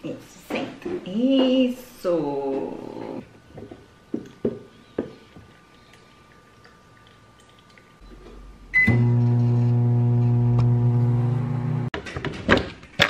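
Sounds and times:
microwave humming: 8.5s - 11.9s
microwave oven beep: 8.7s - 11.8s.

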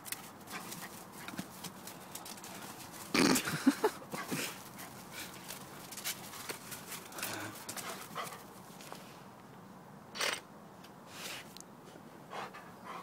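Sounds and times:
dog snorting: 3.0s - 3.6s.

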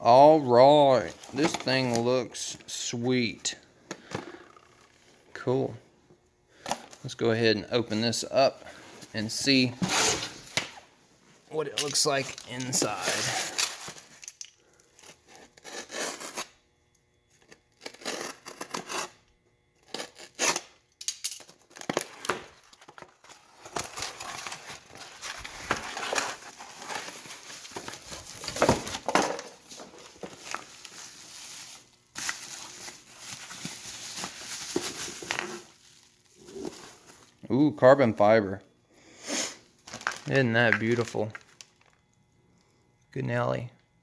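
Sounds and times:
bubble wrap and plastic crinkling: 11.6s - 15.0s, 21.6s - 38.2s, 39.8s - 42.0s
packing tape tearing: 11.8s - 16.6s, 17.4s - 19.2s, 19.8s - 37.3s, 39.8s - 40.3s.

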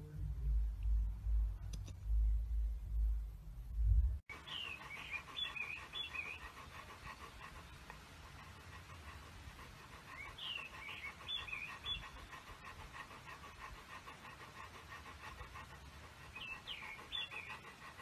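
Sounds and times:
dog panting: 4.3s - 18.0s.

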